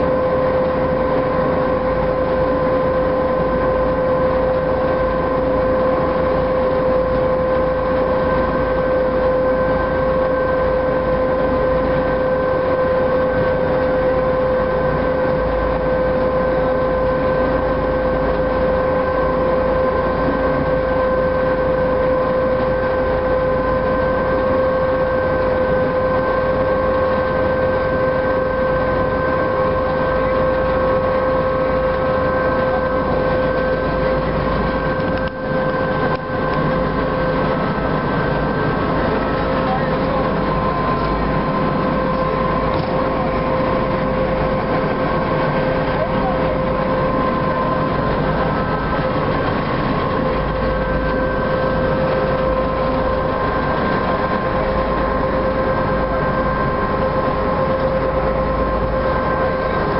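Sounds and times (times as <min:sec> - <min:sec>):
rumble of water: 0:00.0 - 0:59.9
ship engines droning: 0:00.0 - 0:59.9.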